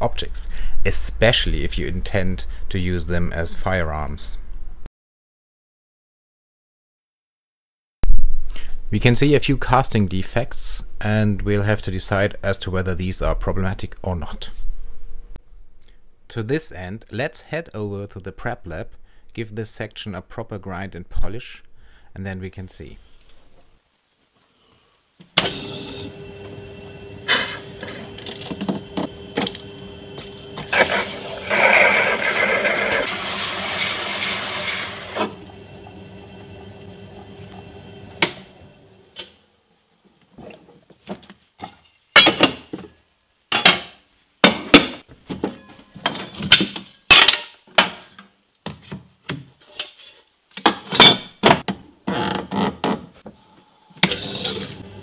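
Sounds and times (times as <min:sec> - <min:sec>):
grinding machine humming: 0:25.5 - 0:39.1, 0:54.1 - 0:55.0.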